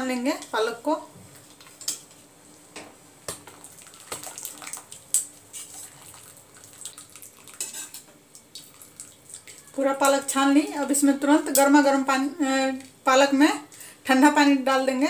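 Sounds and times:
water dripping and splashing: 0:03.4 - 0:11.7.

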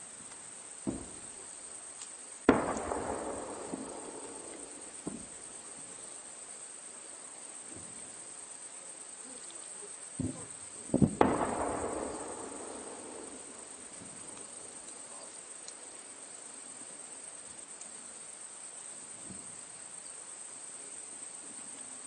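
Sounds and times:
soft thud: 0:00.8 - 0:01.2, 0:05.0 - 0:05.3
artillery boom with rumble: 0:00.8 - 0:01.4, 0:02.5 - 0:06.0, 0:10.2 - 0:14.8.

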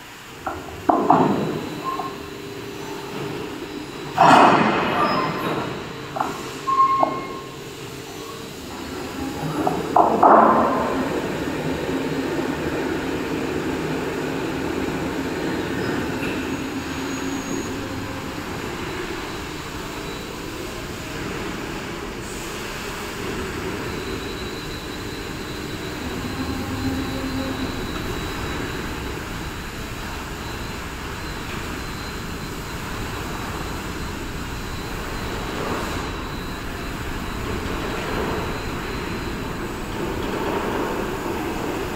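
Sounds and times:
faint high whine: 0:12.5 - 0:41.9.

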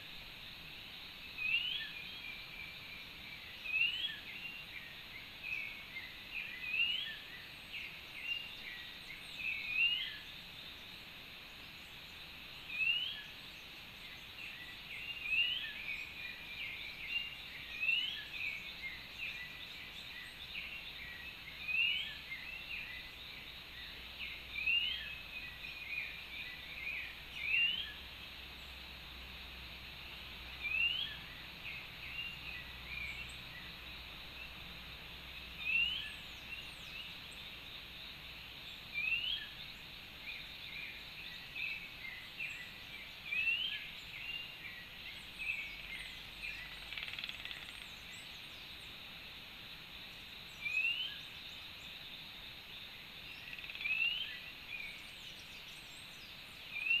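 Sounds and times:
steady background hiss: 0:00.0 - 0:57.0
small bird chirps: 0:40.4 - 0:48.7.

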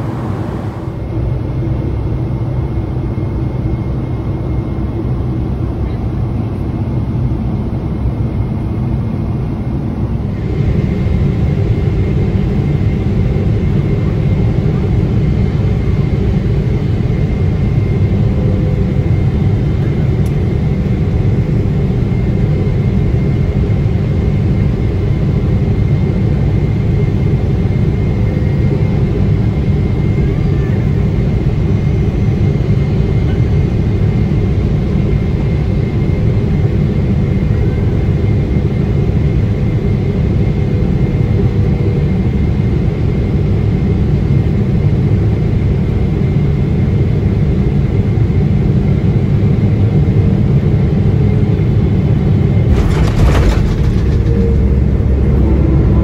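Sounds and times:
faint high whine: 0:00.0 - 0:01.7
airplane cabin roar: 0:00.0 - 0:56.0.

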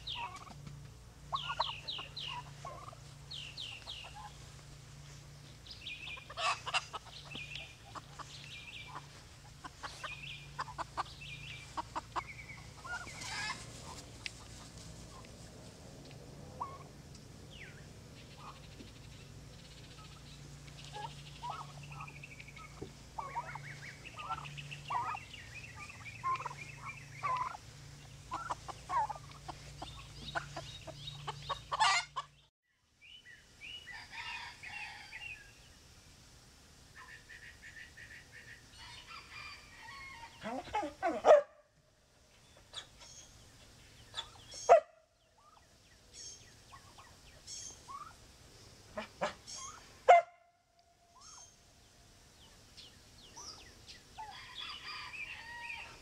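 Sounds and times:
poultry clucking: 0:00.0 - 0:04.8, 0:05.5 - 0:32.5, 0:37.0 - 0:41.6, 0:42.4 - 0:45.6, 0:46.2 - 0:48.2, 0:48.9 - 0:50.3
low steady hum: 0:00.0 - 0:56.0.

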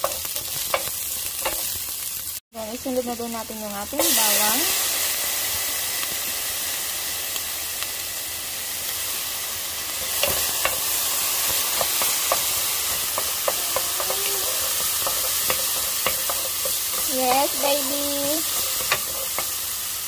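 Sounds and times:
shallots sizzling in hot oil: 0:00.0 - 0:20.0.

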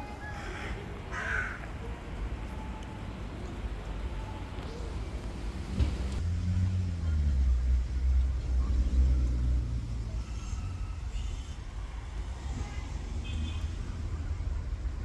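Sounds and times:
vehicle engine rumble passing: 0:03.1 - 0:15.0.

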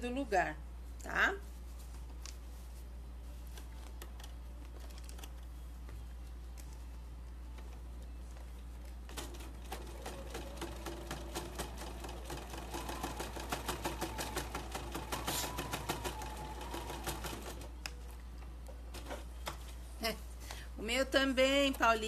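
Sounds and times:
sewing machine stitching: 0:09.1 - 0:17.7.

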